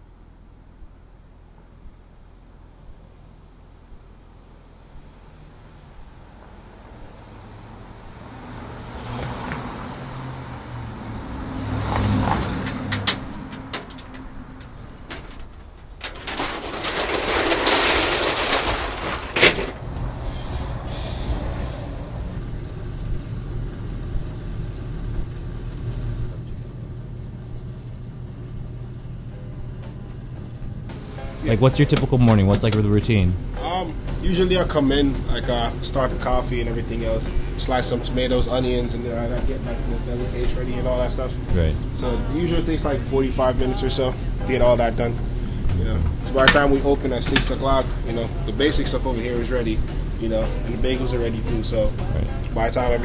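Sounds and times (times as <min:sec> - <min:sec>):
vehicle passing: 0:05.0 - 0:14.9, 0:19.4 - 0:27.9, 0:29.1 - 0:52.5
metal gate clank: 0:12.4 - 0:19.8
security gate rattling: 0:12.4 - 0:19.9.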